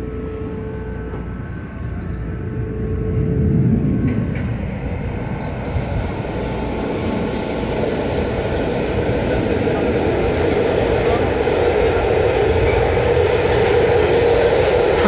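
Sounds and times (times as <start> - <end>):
trolley car wheels and motors rumbling: 0.0 - 15.0.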